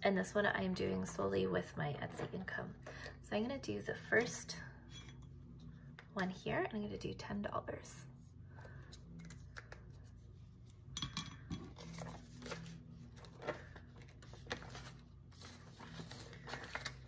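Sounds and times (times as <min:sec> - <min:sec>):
banknote and envelope rustling: 0:11.7 - 0:17.0.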